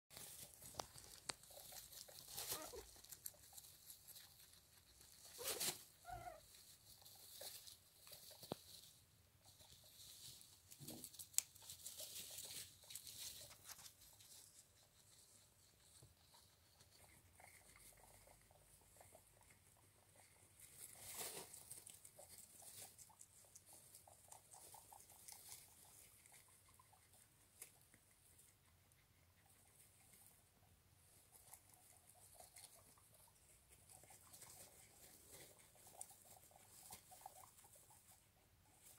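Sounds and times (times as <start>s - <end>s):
rustling of wood-shavings bedding: 0.1s - 28.5s, 31.0s - 38.9s.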